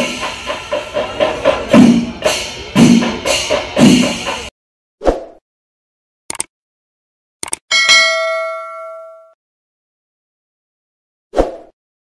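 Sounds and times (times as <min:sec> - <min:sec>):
bell-like ding: 0:07.7 - 0:09.4.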